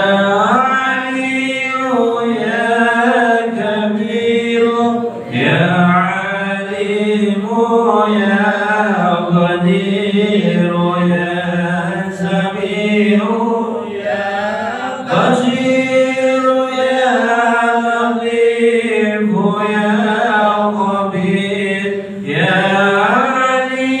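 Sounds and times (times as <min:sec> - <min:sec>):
voices chanting melodically: 0:00.0 - 0:24.0.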